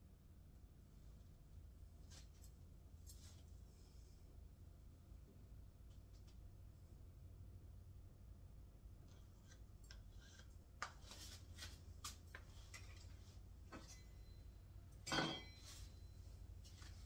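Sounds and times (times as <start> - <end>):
steady low hum: 0.0 - 17.0
ringing clunk: 13.7 - 15.9.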